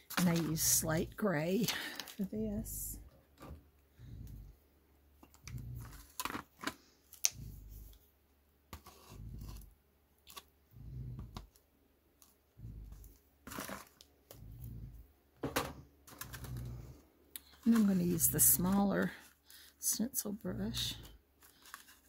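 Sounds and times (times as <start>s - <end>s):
clicks and crinkles of handling: 0.0s - 0.8s, 1.6s - 2.4s, 5.2s - 8.1s, 8.7s - 10.5s, 11.2s - 14.4s, 16.0s - 16.8s, 17.4s - 22.0s.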